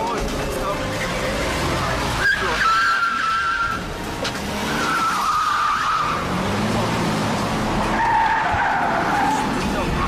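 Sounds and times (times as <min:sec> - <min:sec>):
car engine revving: 0:00.0 - 0:10.0
tyres squealing: 0:00.9 - 0:06.6, 0:07.8 - 0:09.8.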